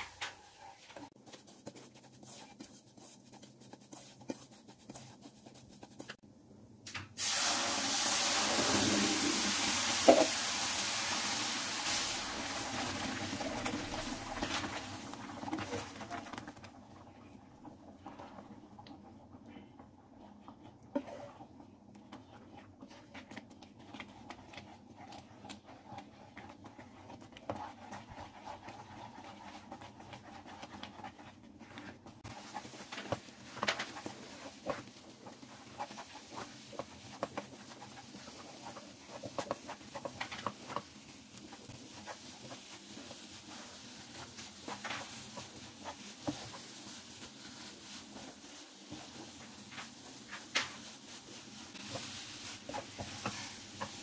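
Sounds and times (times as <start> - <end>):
spatula stirring thick mixture: 0.0 - 6.3, 8.6 - 54.0
spatula scraping and tapping pan: 20.5 - 51.0, 51.7 - 54.0.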